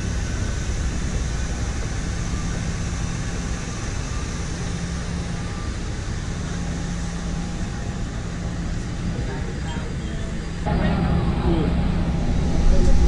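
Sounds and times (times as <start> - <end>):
idling engines rumbling: 0.0 - 13.0.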